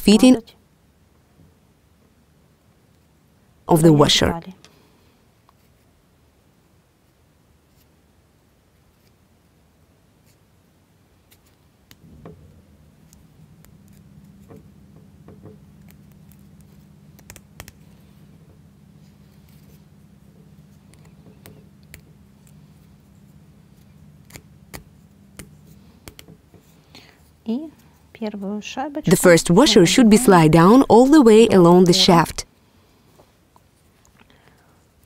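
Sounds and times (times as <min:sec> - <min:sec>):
low steady hum: 0:09.4 - 0:35.0.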